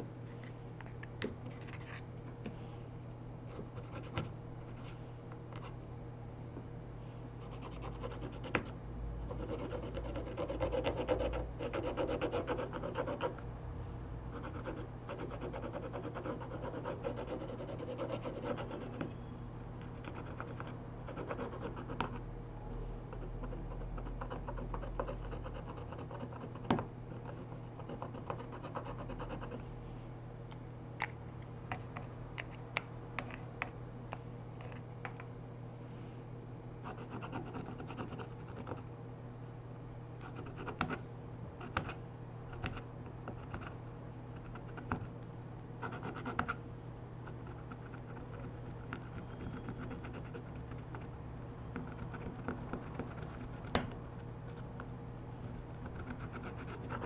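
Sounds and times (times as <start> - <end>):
tools scratching phone frame: 14.4 - 19.0, 47.3 - 51.1.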